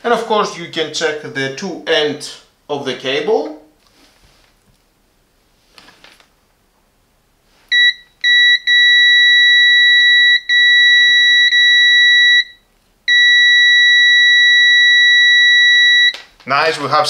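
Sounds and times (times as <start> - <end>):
multimeter continuity beep: 7.7 - 16.2.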